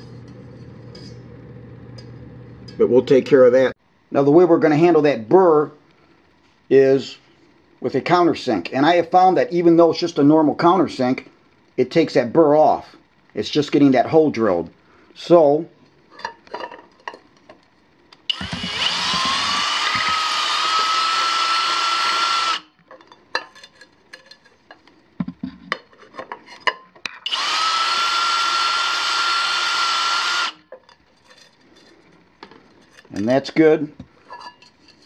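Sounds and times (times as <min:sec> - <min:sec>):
cordless drill whining: 0:18.3 - 0:22.7, 0:27.3 - 0:30.6.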